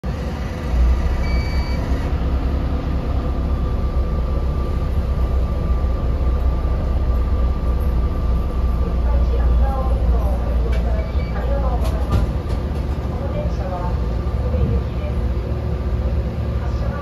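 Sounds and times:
railcar interior hum: 0.0 - 17.0
short high beep: 1.2 - 1.9.

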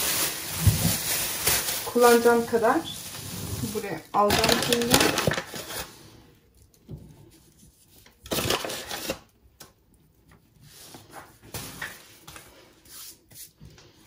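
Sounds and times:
dough rustling and knocking: 0.0 - 2.7.

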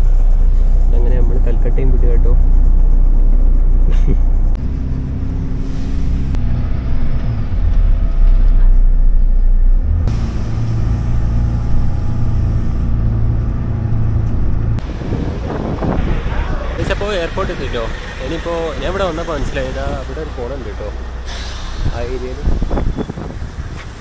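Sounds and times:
bus engine droning: 0.0 - 24.0
road noise on wet roads: 4.5 - 24.0.

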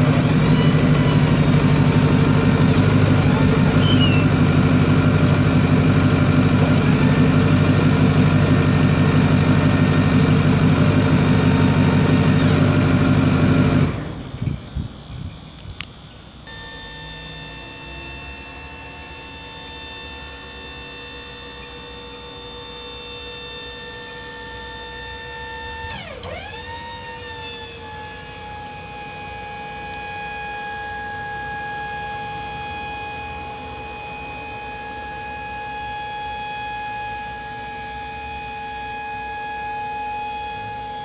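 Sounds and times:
diesel engine idling: 0.0 - 15.1
hydraulic pump motor whining: 0.0 - 41.0.

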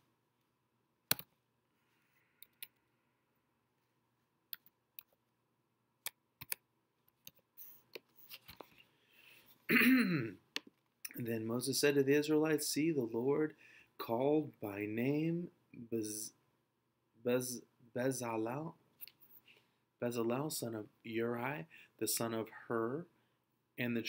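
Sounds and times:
computer keyboard keystrokes: 6.4 - 6.6.

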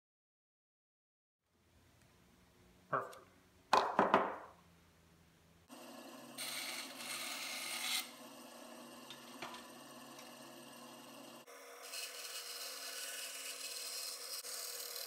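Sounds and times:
bandsaw running: 5.7 - 15.0
bandsaw cutting wood: 6.4 - 8.3, 9.2 - 15.0.

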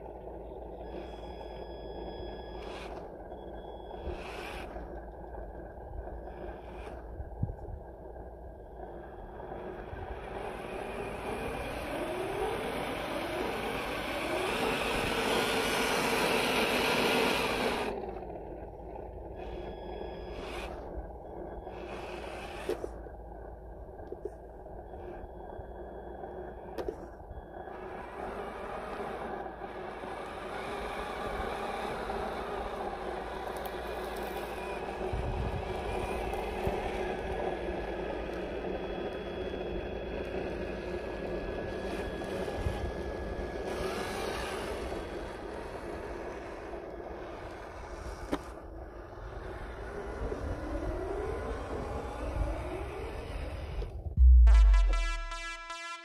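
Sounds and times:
electric motor and drivetrain whine: 0.0 - 54.4.

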